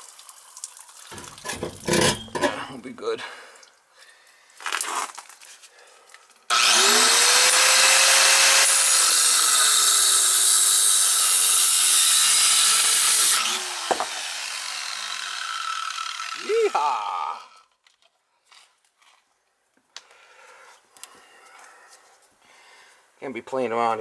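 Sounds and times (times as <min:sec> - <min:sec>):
angle grinder cutting pipe: 0:01.1 - 0:02.6, 0:06.5 - 0:17.7.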